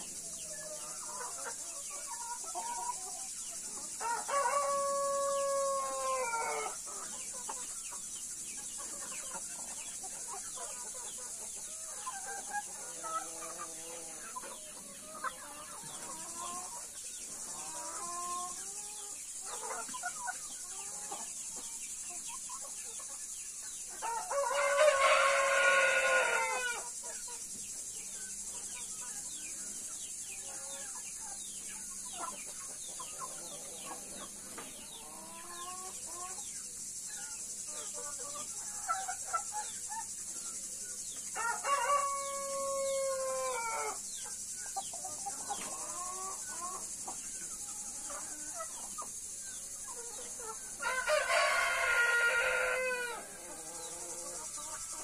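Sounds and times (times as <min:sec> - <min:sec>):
chickens clucking softly: 0:00.0 - 0:55.0
steady high hiss: 0:00.0 - 0:55.0
rooster crowing: 0:04.0 - 0:06.8, 0:24.0 - 0:26.9, 0:41.4 - 0:44.0, 0:50.8 - 0:53.4.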